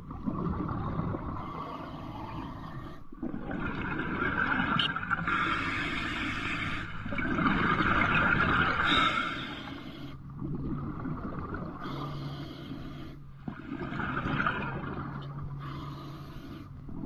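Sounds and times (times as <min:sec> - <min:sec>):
bubbling underwater exhalations: 0:00.0 - 0:02.5, 0:03.2 - 0:05.9, 0:06.5 - 0:09.3, 0:13.5 - 0:15.5
hissing regulator inhalations: 0:08.8 - 0:10.2, 0:11.8 - 0:13.2, 0:15.5 - 0:17.0.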